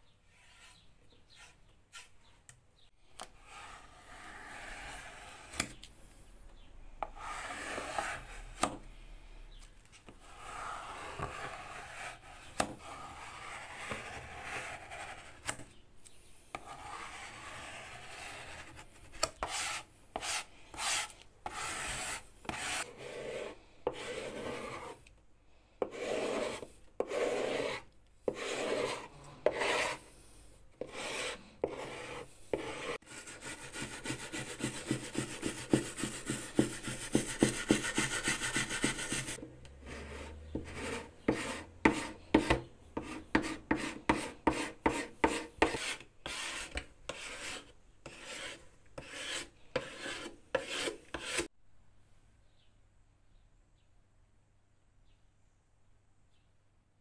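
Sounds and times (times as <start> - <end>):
plastic scraper scraping wood: 7.0 - 8.8, 10.2 - 15.7, 25.8 - 30.0, 30.8 - 51.5
wire brush scrubbing: 33.2 - 39.4.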